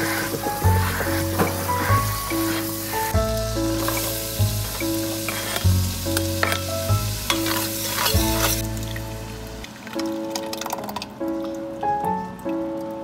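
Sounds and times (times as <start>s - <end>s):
food sizzling in a frying pan: 0.0s - 10.4s
soft background music: 0.0s - 13.0s.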